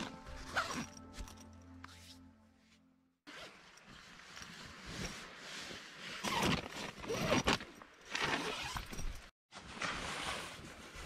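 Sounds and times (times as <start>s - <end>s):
tent zipper being pulled: 0.0s - 1.0s, 3.3s - 11.0s
nylon fabric rustling: 3.2s - 11.0s.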